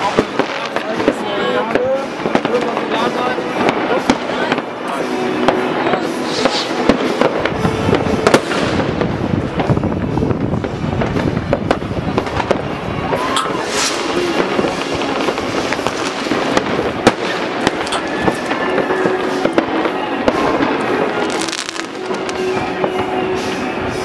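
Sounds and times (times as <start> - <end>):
firecrackers crackling: 0.0 - 24.0
whistling rockets: 5.5 - 9.8, 10.7 - 24.0
rocket bangs: 5.5 - 23.3.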